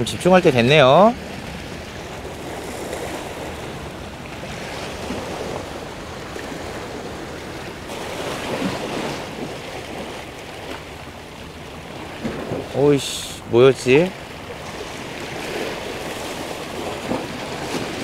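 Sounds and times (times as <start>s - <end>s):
sea waves washing against rocks: 0.0s - 18.0s
wind on microphone: 14.2s - 18.0s.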